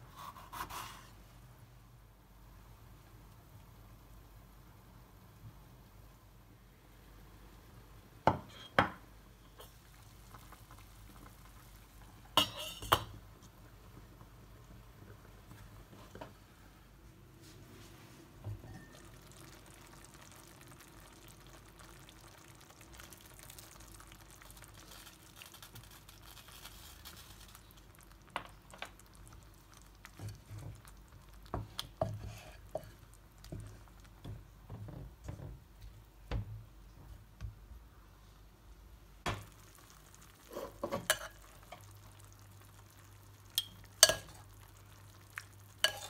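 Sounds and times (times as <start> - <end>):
water pouring into pot: 18.8 - 28.0, 39.4 - 46.0.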